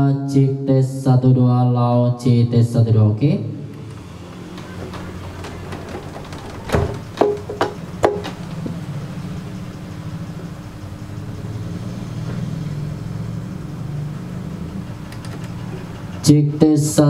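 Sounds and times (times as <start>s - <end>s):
steady low hum: 1.8s - 17.0s
sharp clicks of cable jacks: 3.7s - 8.8s, 14.7s - 16.3s.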